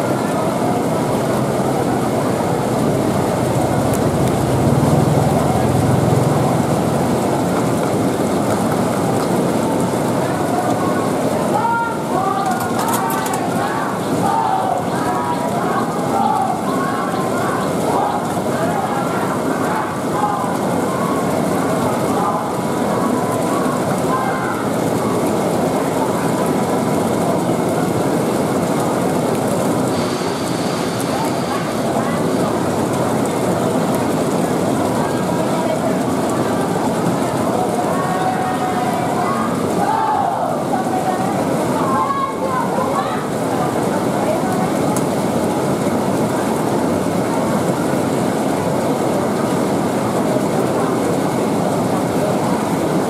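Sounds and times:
faint voices: 0:00.0 - 0:53.0
traffic noise: 0:00.0 - 0:53.0
engine low hum: 0:01.6 - 0:08.8.

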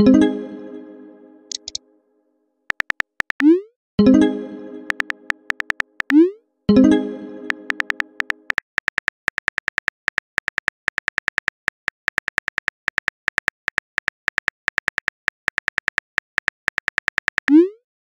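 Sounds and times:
phone keyboard key clicks: 0:01.5 - 0:01.8, 0:02.7 - 0:03.4, 0:04.9 - 0:06.2, 0:07.7 - 0:17.5.

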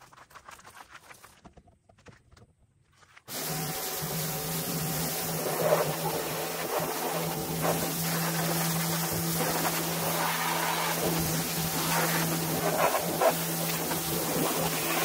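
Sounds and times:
pressure washer motor hum: 0:03.3 - 0:15.0
water jet hissing: 0:03.3 - 0:15.0.

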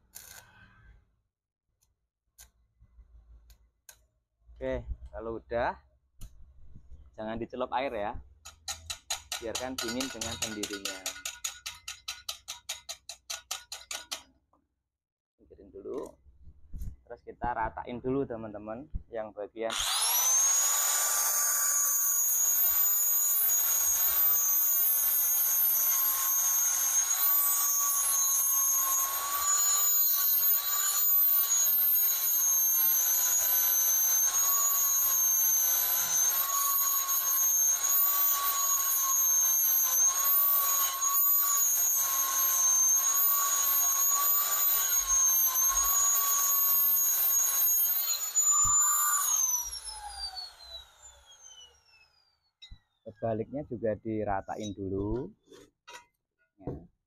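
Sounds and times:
angle grinder whining: 0:08.5 - 0:11.8, 0:19.7 - 0:53.2.

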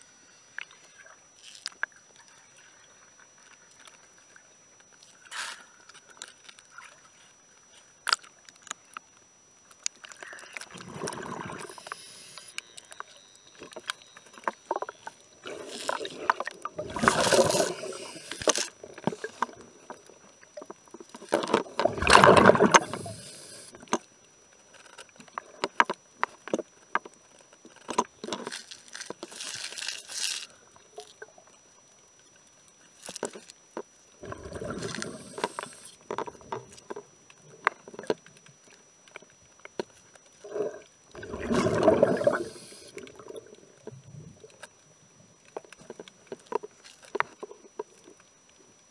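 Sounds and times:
sharp clicks underwater: 0:08.0 - 0:29.3, 0:30.0 - 0:44.8, 0:45.4 - 0:48.6
scuba diver exhaling bubbles: 0:10.6 - 0:12.5, 0:15.4 - 0:18.5, 0:21.8 - 0:23.7, 0:34.2 - 0:36.0, 0:40.4 - 0:44.4.

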